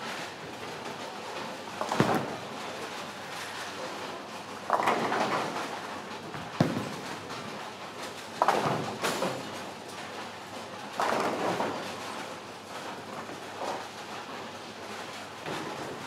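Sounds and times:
bowling pins clattering: 1.8 - 9.7.

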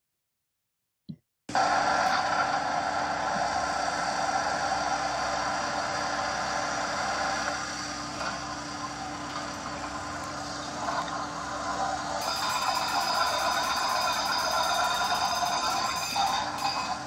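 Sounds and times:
diesel engine running: 1.5 - 17.0
hydraulic breaker hammering rock: 12.2 - 17.0.

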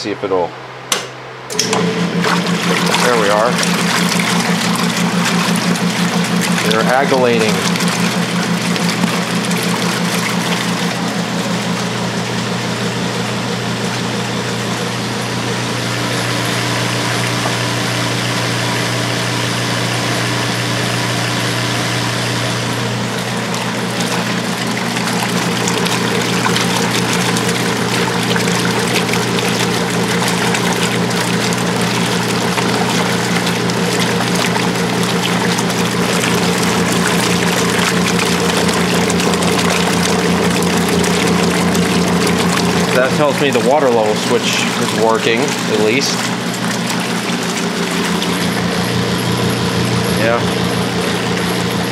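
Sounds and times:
washer drive hum: 0.0 - 51.9
washer agitator sloshing water: 1.5 - 51.9.

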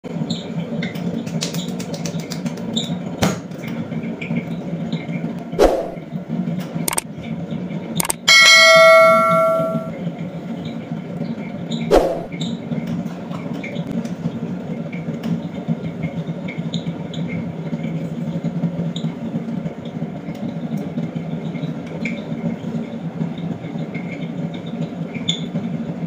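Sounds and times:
sharp clicks: 8.0 - 8.3
bright bell ding: 8.0 - 9.9.

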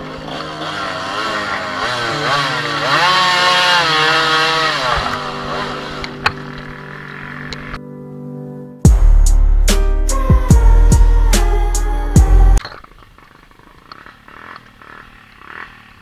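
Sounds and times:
dirt bike engine revving: 0.0 - 7.8, 13.4 - 16.0.

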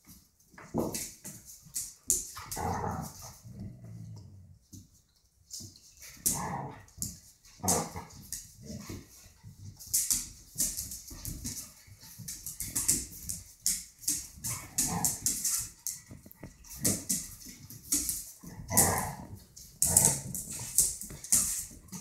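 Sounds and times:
paws scuffling on tile floor: 0.0 - 22.0
dogs growling and yipping: 2.4 - 4.5, 7.6 - 8.9, 14.4 - 15.6, 18.4 - 21.0.

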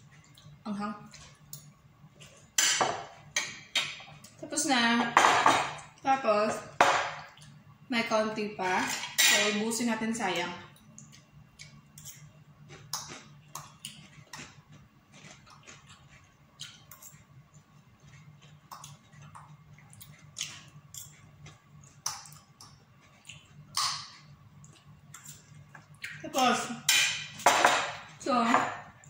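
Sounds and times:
chewing: 0.0 - 2.5, 10.7 - 26.2.

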